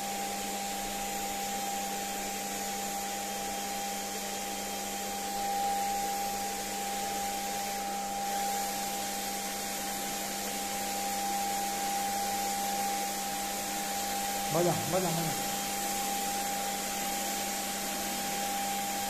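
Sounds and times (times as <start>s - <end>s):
electric paint sprayer whining: 14.5s - 15.8s.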